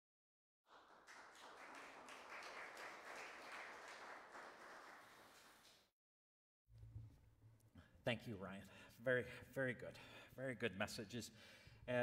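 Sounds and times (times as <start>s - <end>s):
faint applause: 0.7s - 5.9s.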